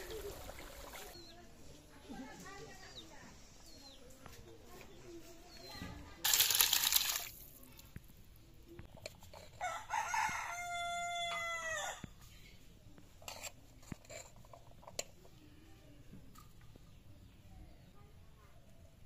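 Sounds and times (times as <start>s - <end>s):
curry poured into steel bowl: 6.3s - 7.7s
rooster crowing: 9.6s - 12.1s.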